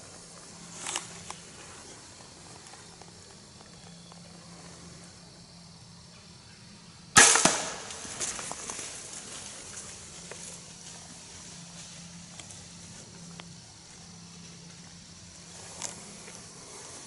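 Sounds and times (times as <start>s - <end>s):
gunshot crack: 7.2s - 8.1s
crackling in leaves: 7.2s - 17.0s.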